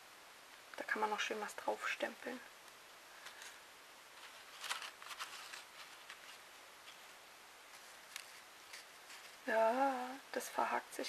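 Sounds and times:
paper rustling and crinkling: 3.2 - 9.5.

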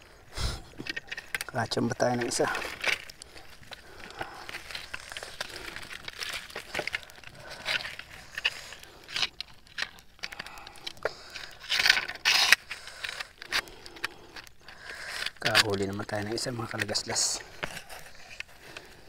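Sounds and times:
twigs and brush crackling: 0.0 - 19.0.

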